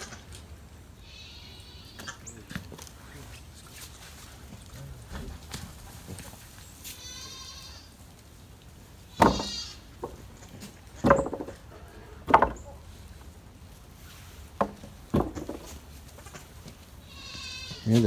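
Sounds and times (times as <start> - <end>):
goats bleating: 1.0 - 2.3, 6.8 - 8.0, 9.0 - 10.0, 16.1 - 18.0.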